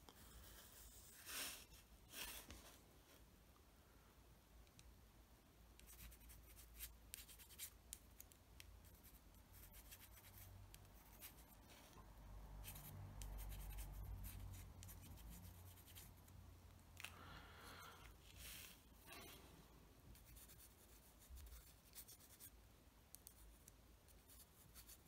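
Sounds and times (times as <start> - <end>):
pencil scratching on plastic: 0.1 - 2.6, 5.8 - 12.0, 12.6 - 16.4, 20.1 - 25.0.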